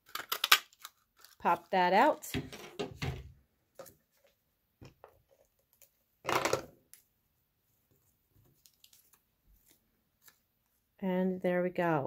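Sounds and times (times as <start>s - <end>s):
paper rustle: 8.3s - 10.8s.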